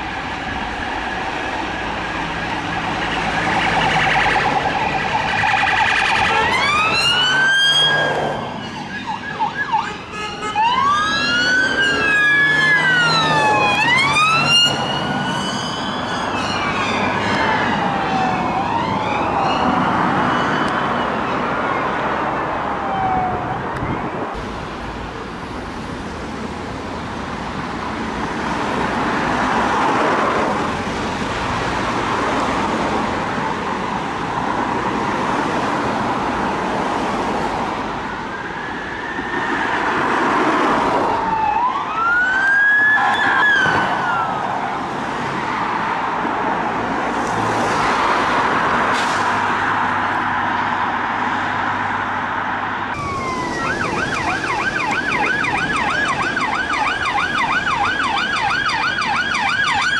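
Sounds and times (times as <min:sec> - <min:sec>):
police siren: 0:00.0 - 0:24.3, 0:38.0 - 0:45.6, 0:52.9 - 0:59.9
passing road traffic: 0:00.0 - 0:59.9.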